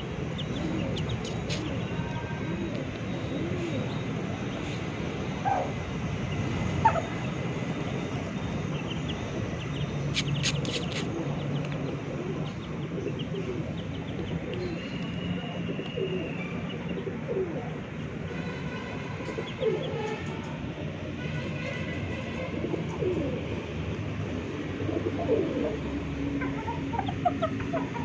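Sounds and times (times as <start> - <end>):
pigeons cooing: 0.3 - 5.9, 10.2 - 17.9, 19.2 - 20.2, 22.3 - 23.6, 24.5 - 28.0
high chick peeps: 0.4 - 2.2, 8.8 - 11.8.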